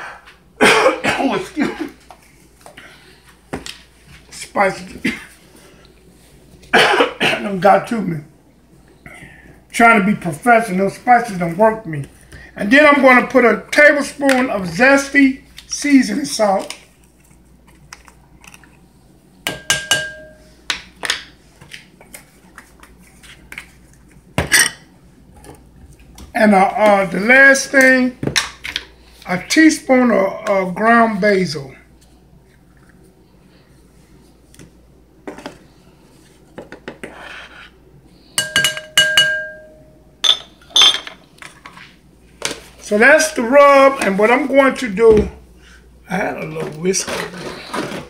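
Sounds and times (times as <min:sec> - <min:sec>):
spoon tapping bowl rim: 0:19.5 - 0:20.4, 0:38.4 - 0:40.4
bowl ringing: 0:19.5 - 0:20.6, 0:38.4 - 0:41.0.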